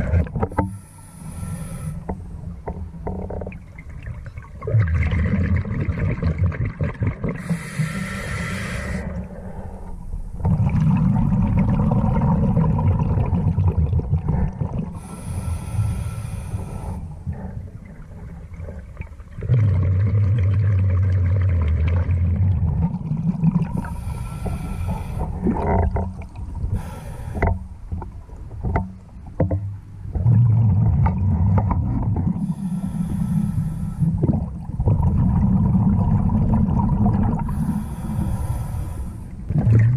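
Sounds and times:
rumble of exhaled bubbles: 0.0 - 0.8, 2.1 - 15.4, 16.7 - 39.9
regulator hiss on inhalation: 0.7 - 2.1, 7.4 - 9.1, 15.0 - 17.0, 23.8 - 25.4, 26.7 - 27.5, 32.4 - 34.2, 37.5 - 39.3.

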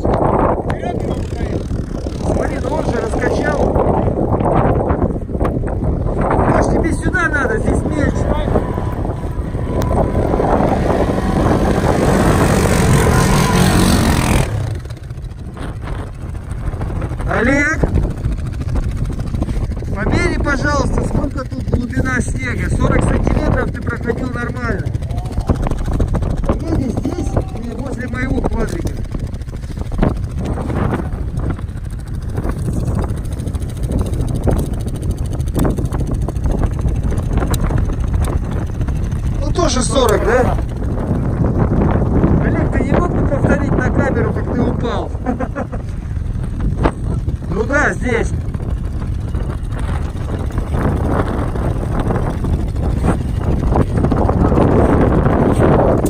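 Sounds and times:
atv engine running: 0.0 - 56.0
wind buffeting microphone: 0.0 - 56.0
loud rushing noise: 7.4 - 15.1.

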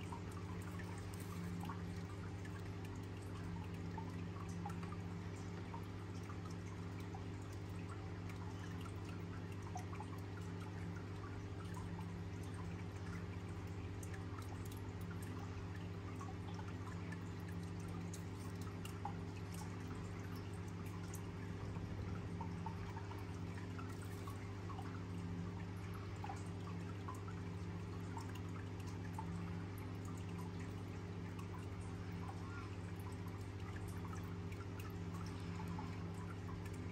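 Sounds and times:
low hum: 10.7 - 36.9.

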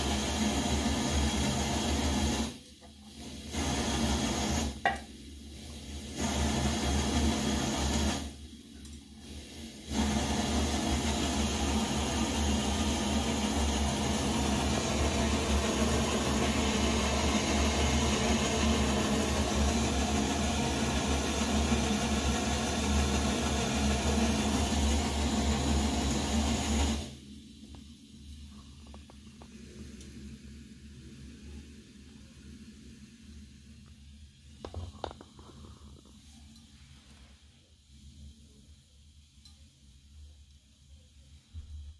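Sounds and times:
stove burner rushing: 0.0 - 27.6.

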